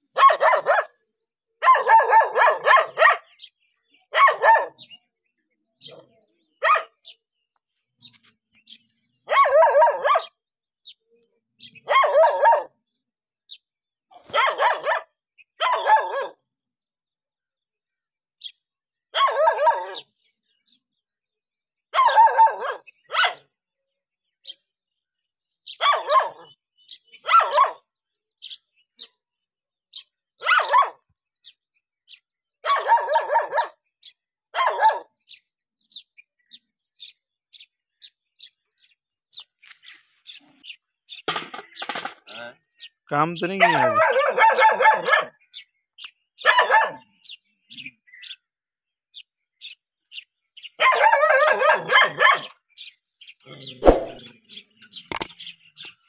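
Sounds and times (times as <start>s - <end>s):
dog barking: 0.1s - 1.0s, 1.6s - 3.4s, 4.1s - 5.0s, 5.8s - 7.1s, 9.3s - 10.4s, 11.8s - 12.8s, 14.2s - 16.4s, 19.1s - 20.1s, 21.9s - 23.5s, 25.7s - 26.6s, 27.2s - 27.9s, 30.4s - 31.1s, 32.6s - 33.8s, 34.5s - 35.2s, 43.4s - 45.5s, 46.4s - 47.1s, 50.8s - 52.6s, 53.6s - 54.2s.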